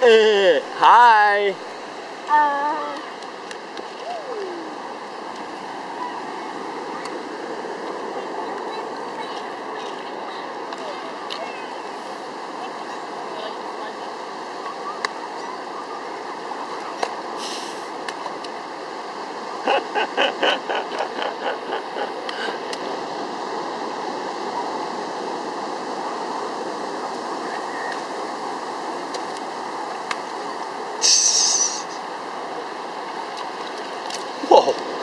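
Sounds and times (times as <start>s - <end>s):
surf washing on beach: 0.0s - 35.0s
child making repeated sounds: 2.3s - 3.1s
high hiss: 17.4s - 18.0s, 31.0s - 32.2s.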